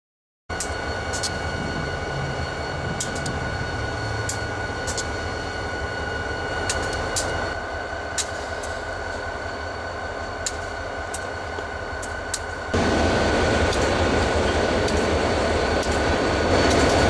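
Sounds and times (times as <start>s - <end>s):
diesel locomotives idling: 0.5s - 17.0s
high whine: 0.5s - 17.0s
sharp ticks: 0.6s - 1.4s, 3.0s - 3.5s, 4.3s - 5.2s, 6.6s - 7.4s, 8.1s - 8.9s, 10.4s - 11.3s, 12.0s - 12.6s, 15.8s - 17.0s.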